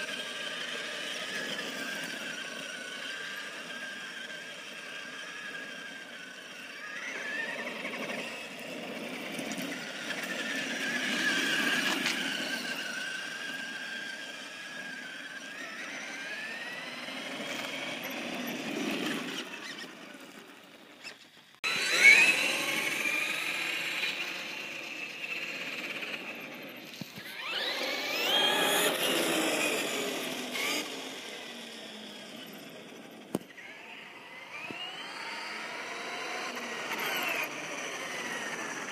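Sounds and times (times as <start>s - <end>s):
rc truck motor whining: 0.0s - 38.9s
tyre and gear noise: 16.7s - 21.7s.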